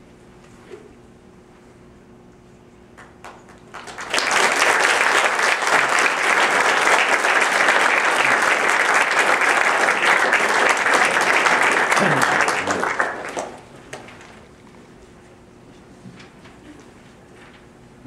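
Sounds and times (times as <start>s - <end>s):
audience applauding: 3.0s - 14.4s.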